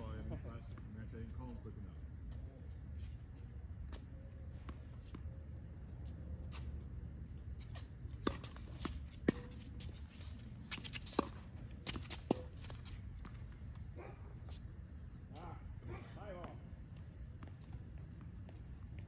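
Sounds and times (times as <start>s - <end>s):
tennis ball bouncing: 8.1s - 10.0s, 10.7s - 13.9s.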